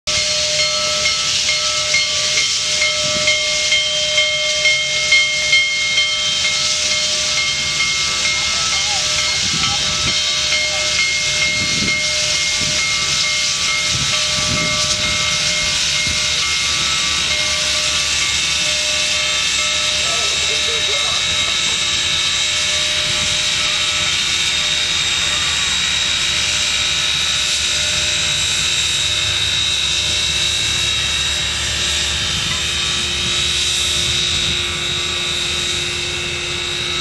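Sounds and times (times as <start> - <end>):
steam locomotive hissing: 0.0 - 37.0.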